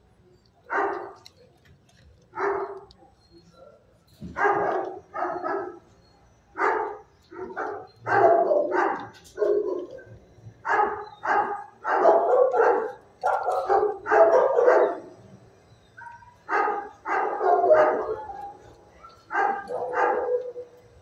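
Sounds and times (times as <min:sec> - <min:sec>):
dog barking: 0:00.7 - 0:01.3, 0:02.4 - 0:02.9, 0:04.3 - 0:05.9, 0:06.6 - 0:15.2, 0:16.0 - 0:20.8.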